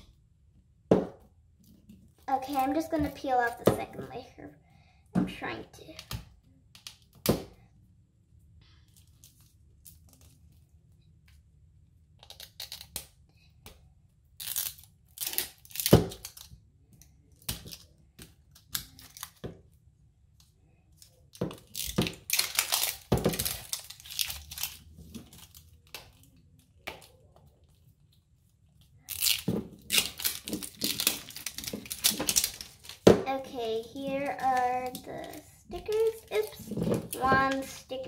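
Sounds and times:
wrapper tearing and crinkling: 0:12.2 - 0:13.1, 0:14.4 - 0:16.6, 0:18.5 - 0:19.4, 0:21.0 - 0:26.4, 0:29.0 - 0:38.0.

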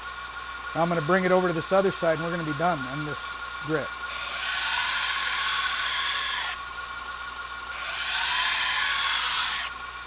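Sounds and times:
belt grinder whining: 0:00.9 - 0:10.0
knife blade grinding hiss: 0:04.0 - 0:10.0.

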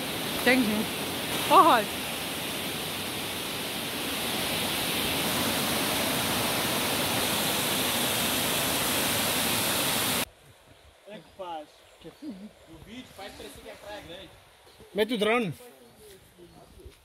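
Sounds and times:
stream water pouring over weir: 0:00.0 - 0:10.3.

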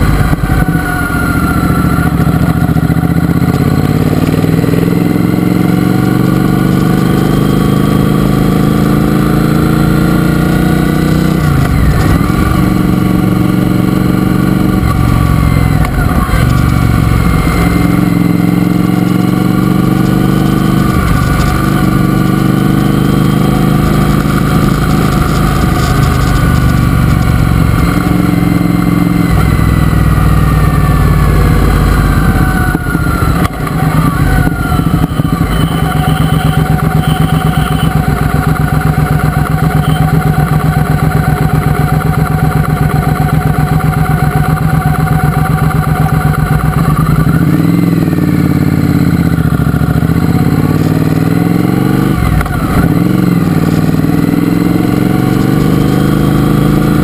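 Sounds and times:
motorcycle engine accelerating: 0:00.0 - 0:57.0
motorcycle engine idling: 0:23.4 - 0:51.5.

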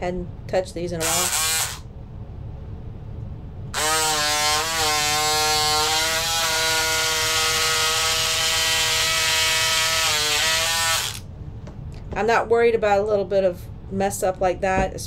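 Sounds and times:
electric scissors motor whine: 0:01.0 - 0:01.9, 0:03.7 - 0:11.2.

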